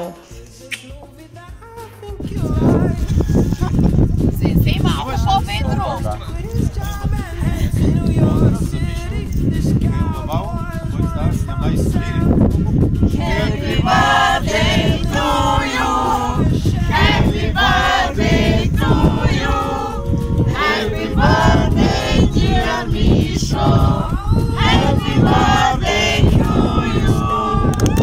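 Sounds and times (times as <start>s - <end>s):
group singing without instruments: 0.0s - 4.0s, 5.6s - 28.0s
low rumbling noise: 12.0s - 28.0s.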